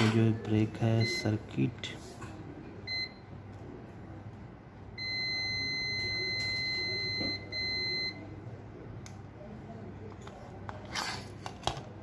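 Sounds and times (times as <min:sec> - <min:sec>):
multimeter continuity beep: 0:01.0 - 0:01.4, 0:02.9 - 0:03.2, 0:05.0 - 0:08.2.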